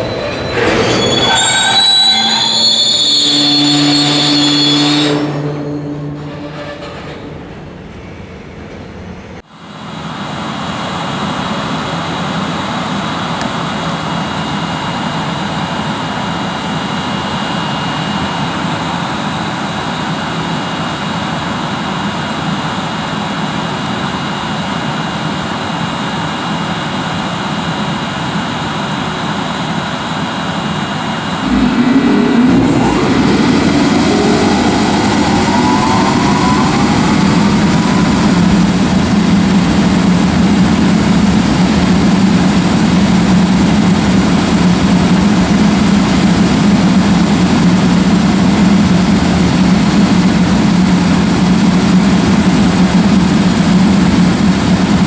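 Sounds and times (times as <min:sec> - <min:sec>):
rising electric whine: 0:31.2 - 0:41.7
locomotive blowers humming: 0:31.3 - 0:41.8.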